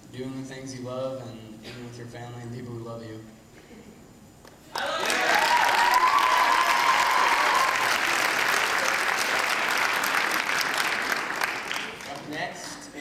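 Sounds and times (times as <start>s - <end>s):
audience cheering: 4.7s - 12.0s
audience applauding: 4.7s - 12.8s.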